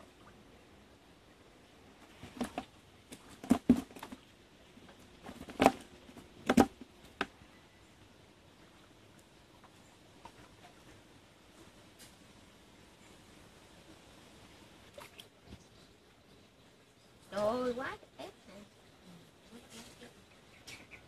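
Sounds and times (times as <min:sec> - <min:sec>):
taps and knocks in plastic basins: 0:02.2 - 0:04.2, 0:05.3 - 0:07.4.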